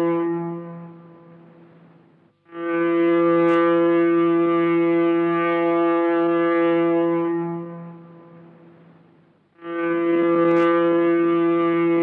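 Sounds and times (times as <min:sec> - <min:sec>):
foghorn deep blast: 0:02.5 - 0:08.6, 0:09.6 - 0:12.0.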